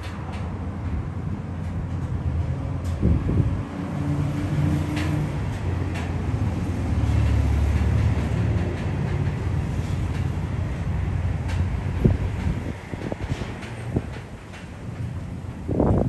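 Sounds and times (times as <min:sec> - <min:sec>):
faint clicks from cars: 0:00.0 - 0:02.2, 0:02.8 - 0:03.1, 0:04.7 - 0:06.3, 0:07.1 - 0:15.3
diesel locomotive drone: 0:00.0 - 0:16.0
freight train rumble: 0:00.0 - 0:16.0.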